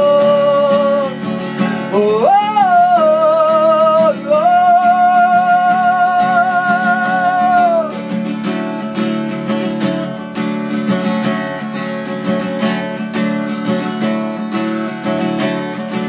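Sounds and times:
person singing: 0.0 - 8.1
acoustic guitar playing: 0.0 - 16.0.

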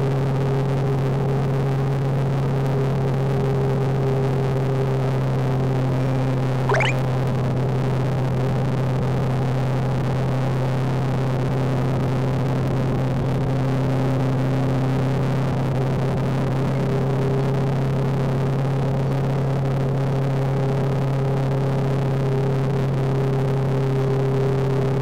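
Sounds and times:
rising chirp: 6.7 - 7.0.

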